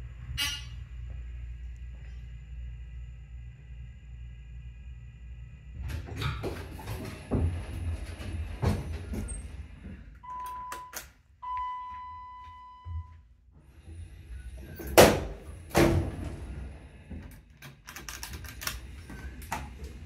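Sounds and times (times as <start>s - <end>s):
sliding doors thumping: 5.7s - 10.2s, 13.6s - 20.0s
elevator beeps: 10.2s - 13.3s.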